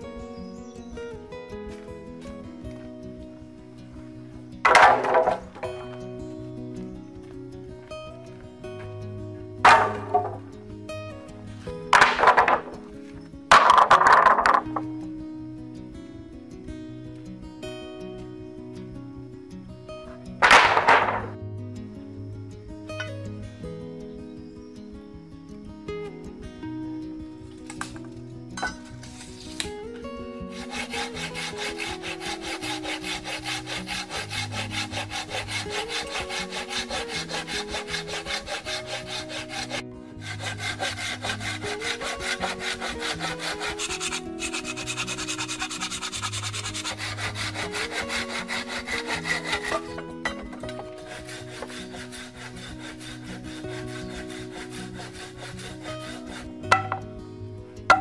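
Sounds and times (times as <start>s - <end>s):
background music: 0.0s - 58.0s
hand saw cutting wood: 4.6s - 6.0s, 9.6s - 10.5s, 11.9s - 12.9s, 13.5s - 14.8s, 20.4s - 21.4s, 30.5s - 57.1s.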